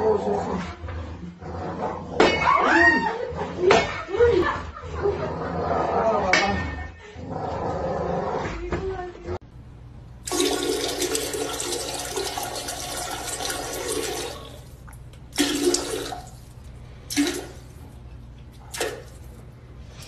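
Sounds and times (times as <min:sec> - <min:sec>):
toilet flushing: 0:10.2 - 0:17.9.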